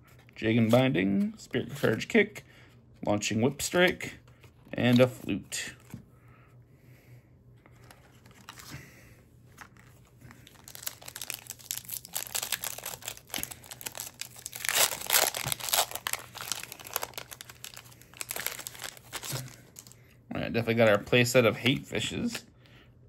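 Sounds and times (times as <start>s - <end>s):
foil wrapper crinkling and tearing: 9.6s - 20.0s.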